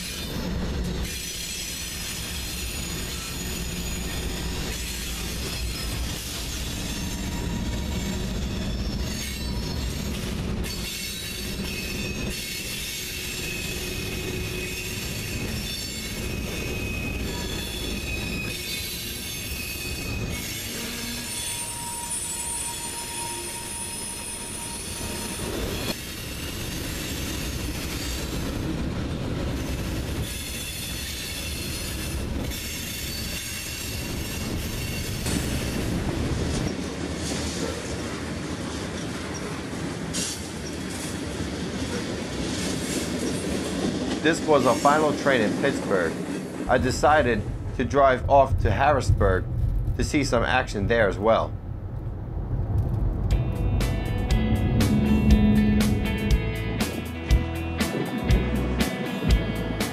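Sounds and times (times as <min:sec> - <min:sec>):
diesel locomotive passing: 0:00.0 - 0:59.9
rumble of wheels on rail: 0:00.0 - 0:59.9
high-pitched wheel squeal: 0:01.0 - 0:28.3, 0:29.6 - 0:36.0, 0:54.7 - 0:56.4.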